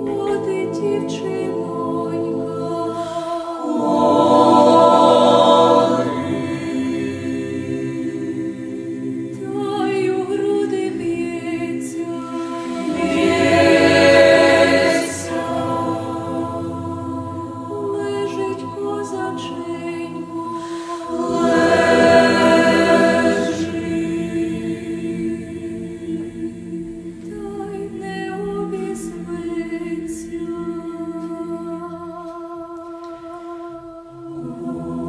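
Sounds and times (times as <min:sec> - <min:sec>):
choir singing a cappella: 0:00.0 - 0:35.0.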